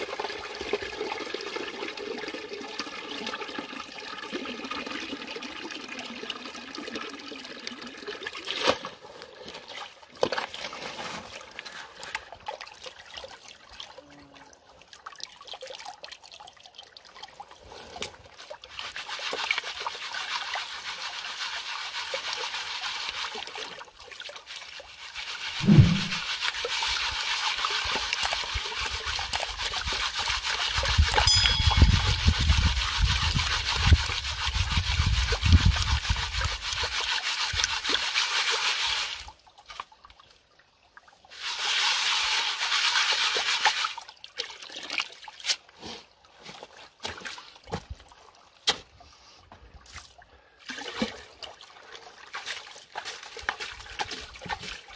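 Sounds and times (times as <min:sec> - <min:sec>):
water trickling and splashing: 0:00.0 - 0:54.9
low rumble: 0:25.6 - 0:26.2.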